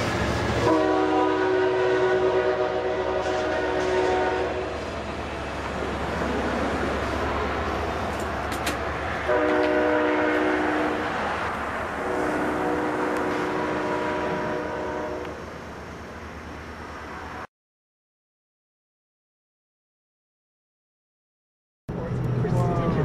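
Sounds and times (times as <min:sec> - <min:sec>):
rumble of passing train cars: 0:00.0 - 0:17.5, 0:21.9 - 0:23.0
train horn chord: 0:00.6 - 0:04.7, 0:09.3 - 0:11.0, 0:12.0 - 0:15.4.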